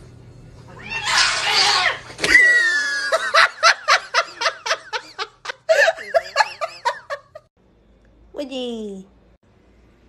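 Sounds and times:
person laughing: 0:02.6 - 0:07.4.

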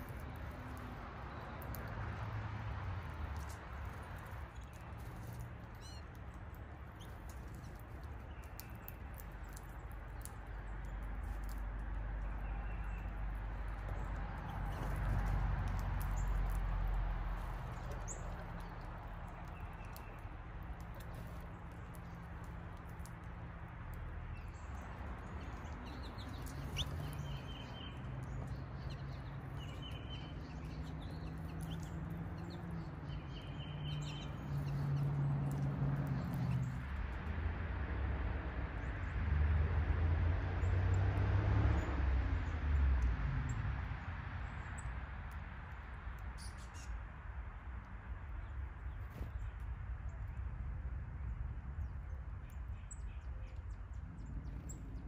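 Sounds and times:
birds pecking at feeder: 0:00.0 - 0:37.3
songbird trill: 0:04.2 - 0:15.0, 0:17.7 - 0:23.0, 0:24.1 - 0:36.8, 0:51.8 - 0:55.0
bird chirps: 0:05.7 - 0:06.1, 0:24.3 - 0:35.1.

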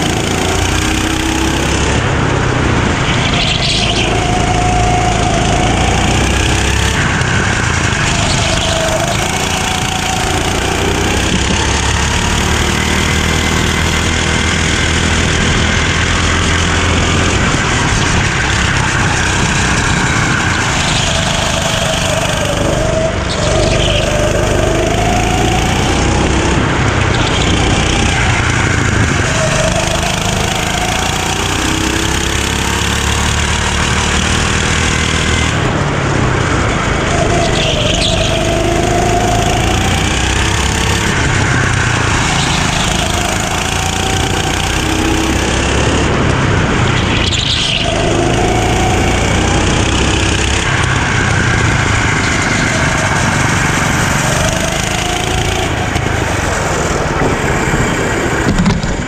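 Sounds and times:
go-kart engine running hard: 0:00.0 - 0:59.0
steady rushing noise: 0:00.0 - 0:59.0.

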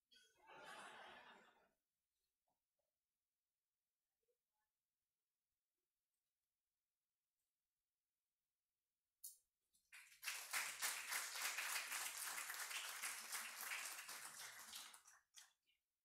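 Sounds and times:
audience applauding: 0:09.9 - 0:15.6.

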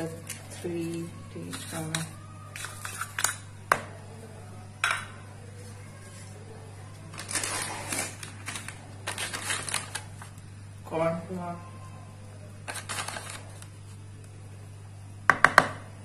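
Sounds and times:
steady low hum: 0:00.0 - 0:16.0
spoon scraping dry powder: 0:00.7 - 0:03.5
spoon knocking plastic bowl: 0:15.3 - 0:15.8.

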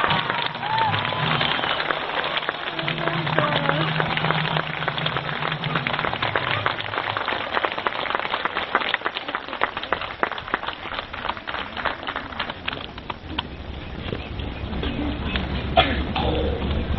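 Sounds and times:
crowd clapping: 0:00.0 - 0:13.6.

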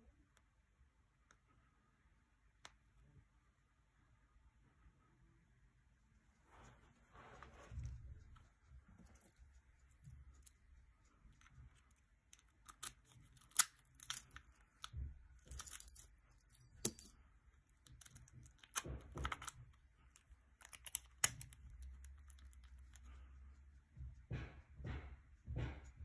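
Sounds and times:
padlock clicks and rattles: 0:11.8 - 0:17.1, 0:17.7 - 0:23.1
shackle snapping open and shut: 0:12.4 - 0:14.5.

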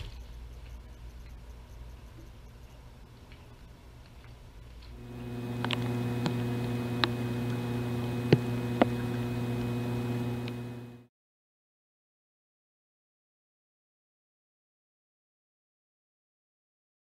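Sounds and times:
electrical hum: 0:00.0 - 0:11.1.

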